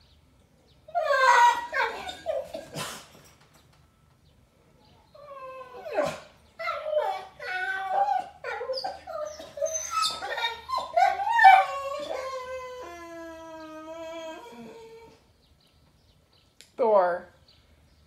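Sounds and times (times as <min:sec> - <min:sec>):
dog whining and yowling: 0:00.9 - 0:03.0, 0:05.0 - 0:15.3.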